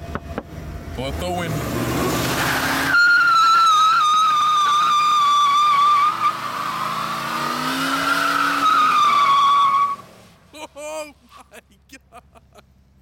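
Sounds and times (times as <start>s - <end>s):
truck engine revving: 1.0s - 10.5s
tyres squealing: 2.3s - 10.0s.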